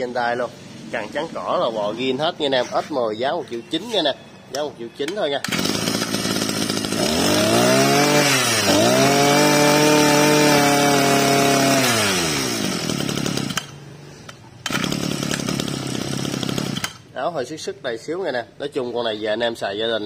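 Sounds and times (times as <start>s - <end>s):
brush-cutter engine revving: 5.4s - 13.8s, 14.6s - 17.1s.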